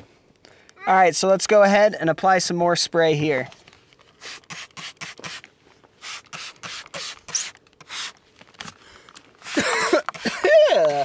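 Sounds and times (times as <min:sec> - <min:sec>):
spray bottle hissing sprays: 0:04.2 - 0:08.2.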